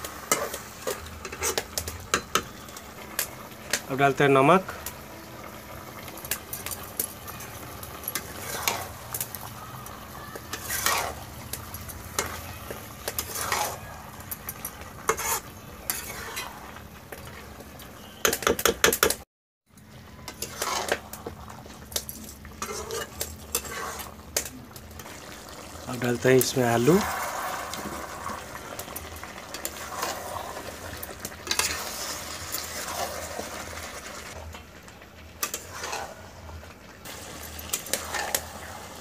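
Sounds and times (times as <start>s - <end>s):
curry sizzling: 0.0s - 19.0s, 19.7s - 39.0s
metal spatula scraping a pan: 0.1s - 2.7s, 6.6s - 9.5s, 10.4s - 17.4s, 20.2s - 21.3s, 22.5s - 25.1s, 26.6s - 34.1s, 35.4s - 36.4s, 37.1s - 39.0s.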